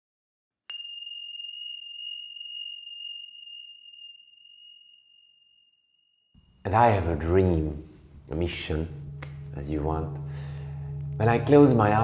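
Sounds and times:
small metal bell ringing: 0.7 - 5.7.

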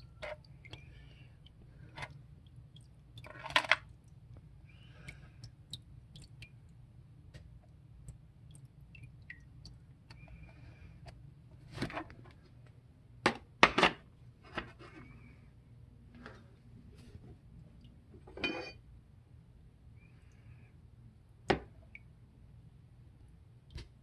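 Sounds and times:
liquid dripping: 0.2 - 10.5.

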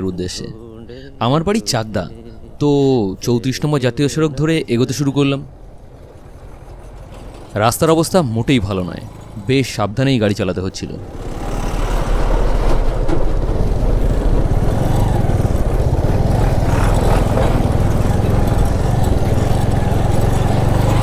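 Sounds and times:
motorcycle engine hum: 0.0 - 21.0
wind and road noise: 0.0 - 21.0.

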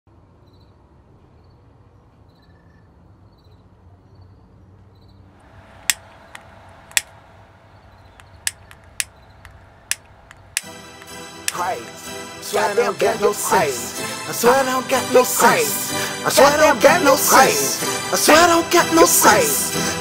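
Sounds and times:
sharp cracks: 5.4 - 12.0
light clicks: 5.7 - 7.3, 7.9 - 11.6.

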